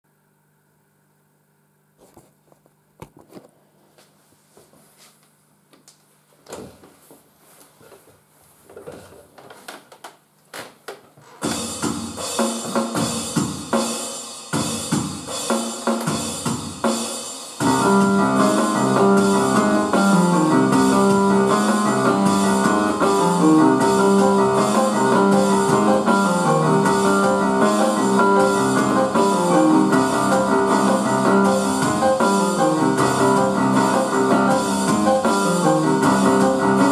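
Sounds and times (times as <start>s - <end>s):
programmed drum beat: 11.4s - 36.9s
keyboard melody: 17.6s - 36.9s
sustained chords and bass: 17.6s - 36.9s.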